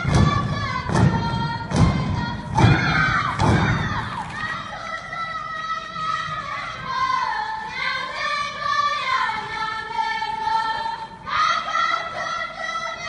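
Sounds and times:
women singing folk song together: 0.0s - 13.0s.

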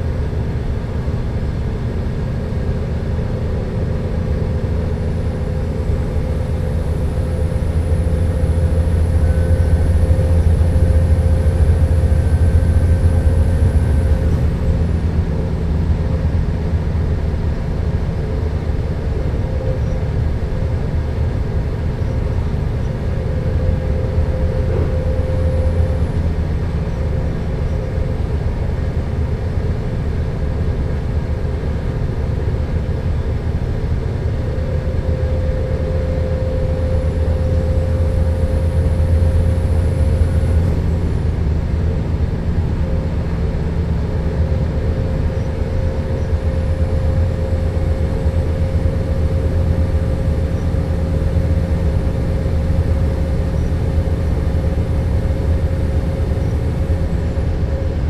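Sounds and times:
diesel train engine drone: 0.0s - 58.0s
faint high whine: 5.0s - 15.4s, 19.1s - 28.2s, 34.2s - 42.1s.

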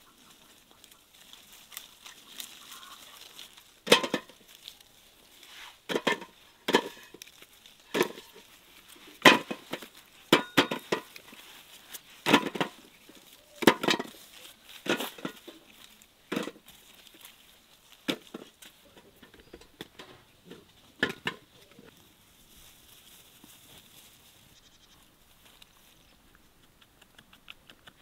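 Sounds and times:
sharp knocks and clatters: 3.8s - 4.4s, 5.9s - 7.2s, 9.2s - 11.3s, 12.2s - 12.8s, 18.1s - 21.5s.

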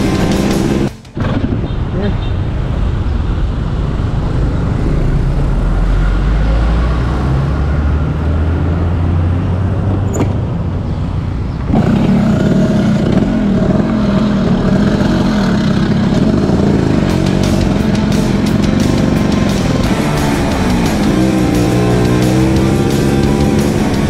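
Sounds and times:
scooter engine running: 0.0s - 1.0s, 11.6s - 24.0s
rushing wind: 0.0s - 24.0s.

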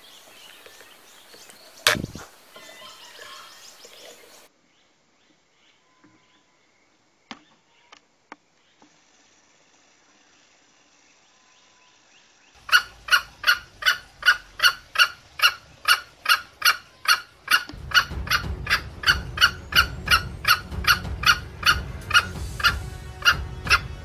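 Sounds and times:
junglefowl clucking: 12.6s - 23.9s
low rumbling noise: 17.7s - 24.0s.

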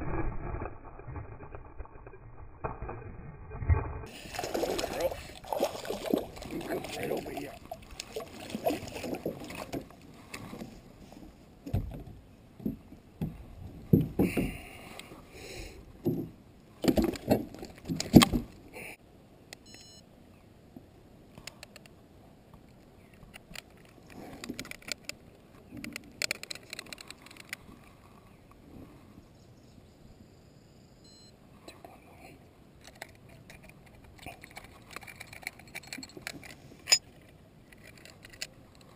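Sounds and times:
knocks and thumps on kayak: 11.6s - 14.6s, 16.0s - 18.5s.

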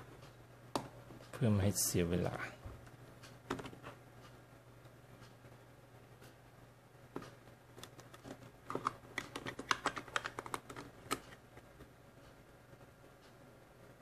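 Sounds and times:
plastic clicks and rattles: 7.2s - 11.4s.

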